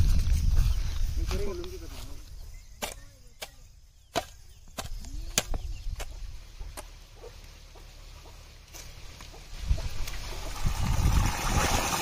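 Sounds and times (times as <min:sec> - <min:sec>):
hand hoe chopping soil: 0:02.8 - 0:10.3.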